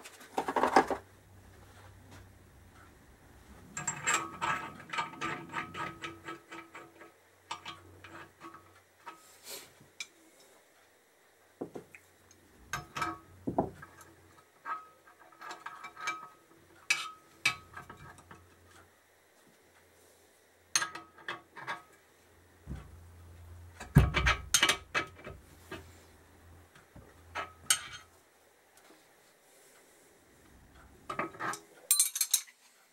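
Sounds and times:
spanners clinking on metal: 3.7 - 8.6, 23.8 - 25.4, 27.3 - 28.1, 31.1 - 32.6.

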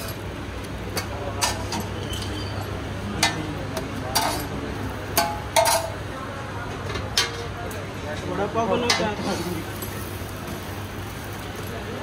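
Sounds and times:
metal spatula clinking on griddle: 0.9 - 3.5, 4.1 - 4.5, 5.1 - 6.0, 8.7 - 10.0.

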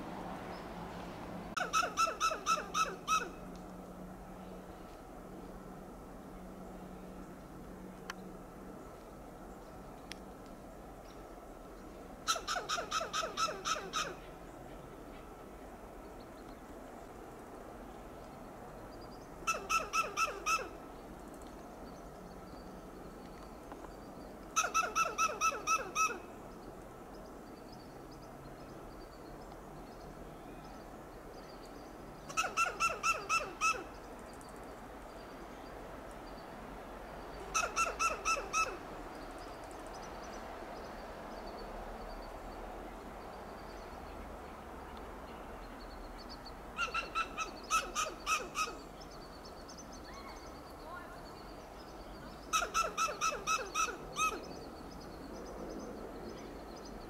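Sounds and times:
squirrel barking alarm calls: 1.6 - 3.4, 12.3 - 14.2, 19.4 - 20.8, 24.6 - 26.3, 32.3 - 34.0, 37.4 - 38.8, 46.8 - 49.1, 52.4 - 54.6.

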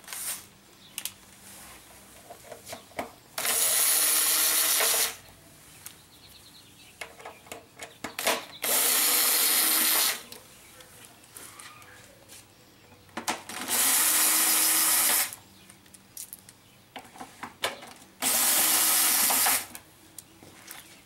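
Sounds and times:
cordless screw gun running: 3.4 - 5.2, 8.6 - 10.2, 13.6 - 15.4, 18.2 - 19.7.

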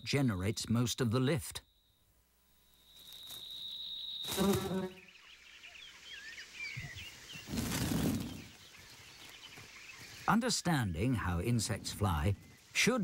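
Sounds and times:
insect high whine: 1.6 - 8.6
small birds chirping: 2.7 - 13.0.

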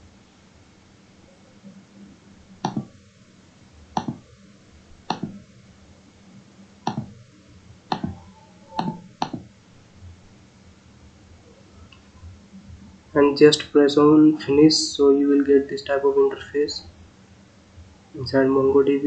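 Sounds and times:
computer mouse button clicks: 2.7 - 2.9, 5.1 - 5.4, 6.9 - 7.1, 7.9 - 8.2.

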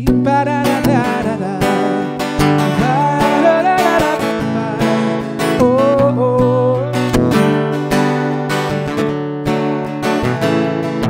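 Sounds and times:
man singing: 0.0 - 8.2
acoustic guitar strumming: 0.0 - 11.0.

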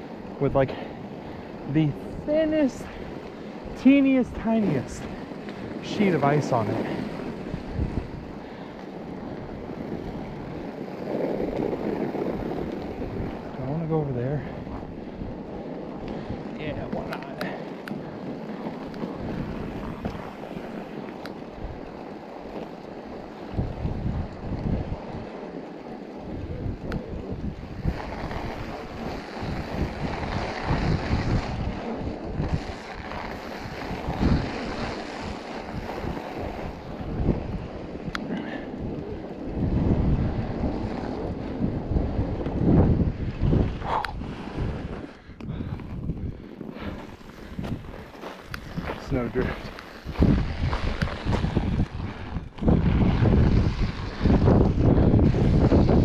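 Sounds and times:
bike tyres crunching snow: 0.0 - 56.0
wind buffeting microphone: 0.0 - 56.0.

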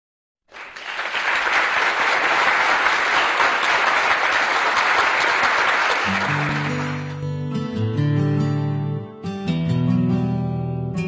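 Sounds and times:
crowd applause: 0.5 - 7.2.

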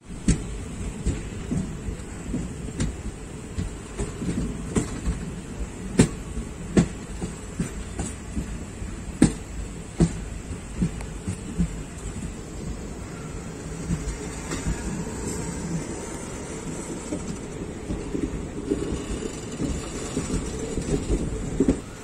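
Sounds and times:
train wheels rumbling on rails: 0.0 - 22.0
sharp clacks and knocks: 9.2 - 12.2.

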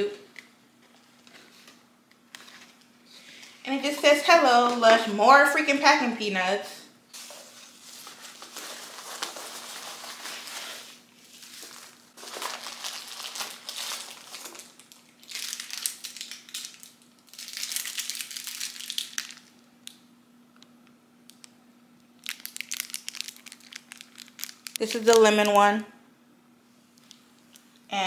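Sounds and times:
packing peanuts and plastic rustling: 7.2 - 20.0, 22.2 - 25.8.

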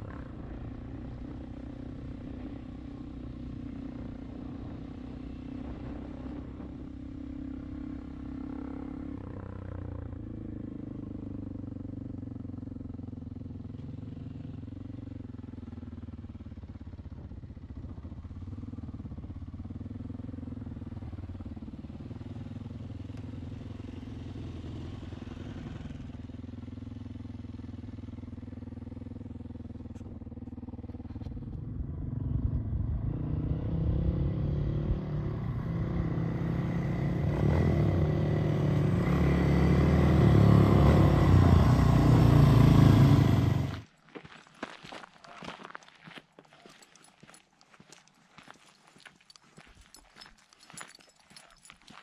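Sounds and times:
dirt bike engine running: 0.0 - 33.3.

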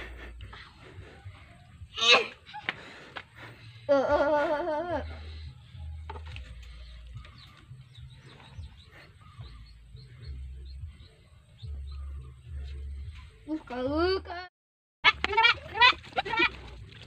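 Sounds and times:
faint bird chirps: 6.4 - 13.6
goat bleating: 15.0 - 16.7.

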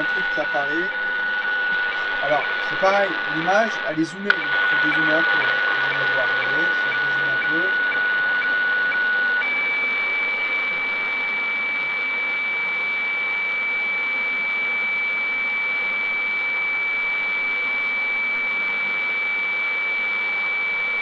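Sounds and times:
radio static: 0.0 - 13.4
steady high radio tone: 0.0 - 21.0.

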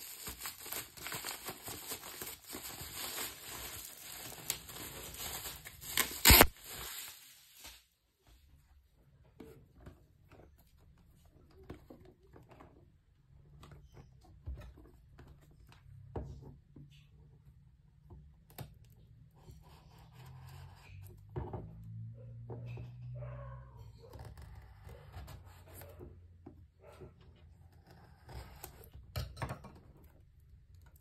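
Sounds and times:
knife slitting plastic seal: 5.9 - 6.5.

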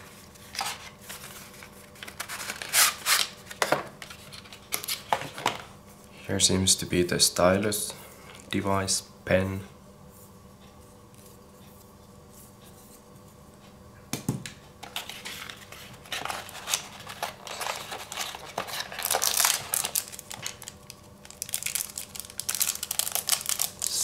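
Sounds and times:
plastic bag crinkling: 15.4 - 24.0.

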